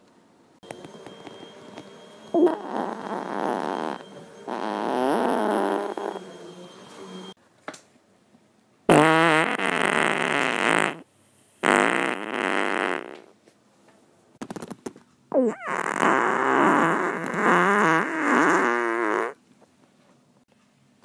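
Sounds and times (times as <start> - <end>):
buzzing farts: 2.3 - 6.2, 8.9 - 13.3, 15.3 - 19.4.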